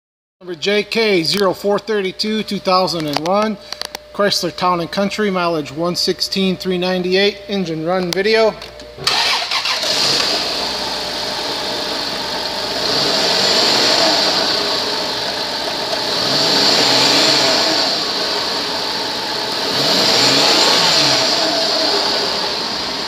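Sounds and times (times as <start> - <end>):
car engine idling and revving: 9.0 - 23.0.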